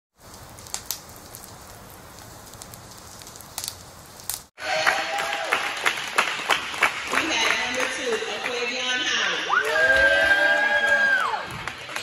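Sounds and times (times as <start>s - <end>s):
crackling hiss: 0.2s - 4.5s
crowd clapping: 4.6s - 8.7s, 9.5s - 12.0s.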